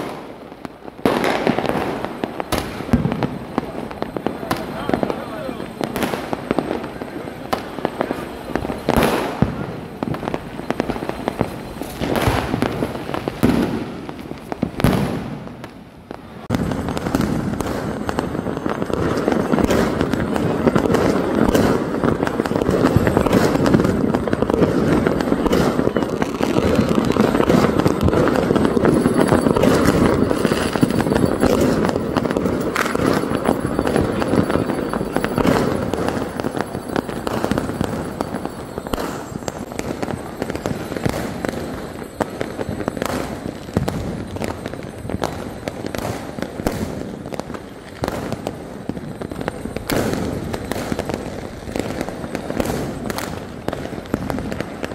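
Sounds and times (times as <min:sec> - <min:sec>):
firecrackers banging: 0:00.0 - 0:54.9
crowd voices: 0:01.8 - 0:13.2, 0:18.2 - 0:54.8.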